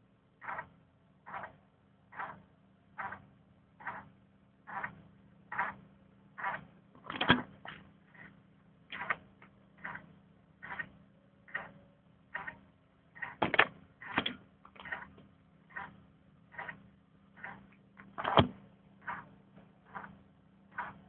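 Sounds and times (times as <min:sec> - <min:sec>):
faint low hum: 0:00.0 - 0:21.0
printer whirring: 0:06.4 - 0:12.6, 0:13.2 - 0:21.0.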